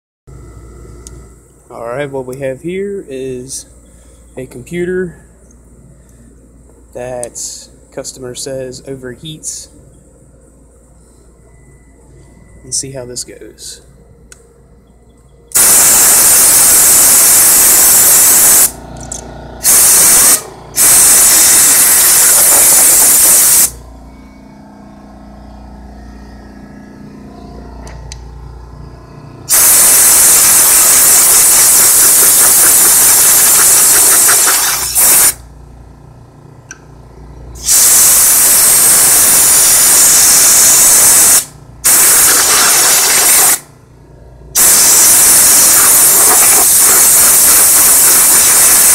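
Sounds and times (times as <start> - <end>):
compressed air blasts hissing: 15.5 - 23.8, 29.5 - 35.4, 37.6 - 43.7, 44.6 - 48.9.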